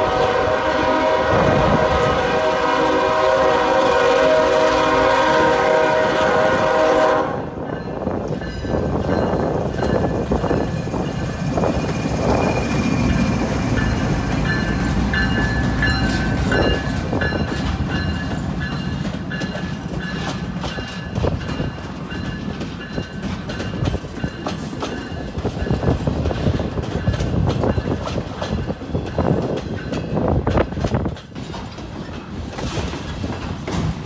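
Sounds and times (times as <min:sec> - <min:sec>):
diesel locomotives rumbling: 0:00.0 - 0:34.0
wheels clanking over rail joints: 0:07.7 - 0:34.0
high wheel squeal: 0:11.6 - 0:14.0.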